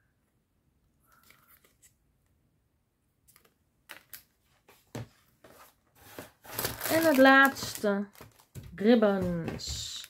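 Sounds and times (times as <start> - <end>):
plastic packaging rustling: 5.5 - 10.0.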